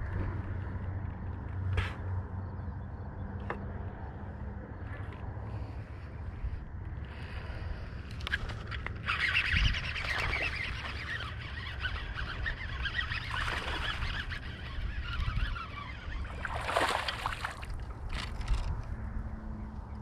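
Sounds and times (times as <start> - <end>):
wind rumble on microphone: 0.0 - 20.0
fish splashing at water surface: 16.3 - 17.7.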